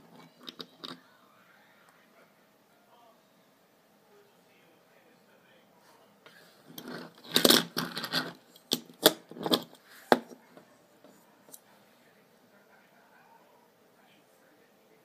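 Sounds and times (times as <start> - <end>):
toy car scraping and rustling: 6.6 - 10.2
toy car clicking on desk: 6.7 - 9.7.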